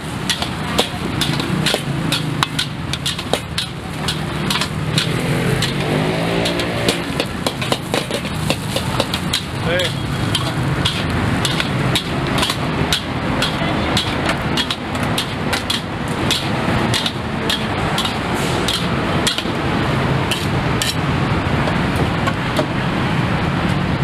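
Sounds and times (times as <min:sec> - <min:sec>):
metal spatula clanking on a wok: 0:00.0 - 0:19.6, 0:20.2 - 0:21.0.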